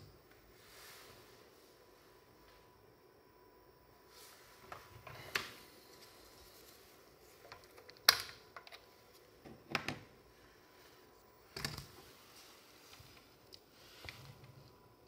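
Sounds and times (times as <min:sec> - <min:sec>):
faint steady whine: 0:00.0 - 0:15.0.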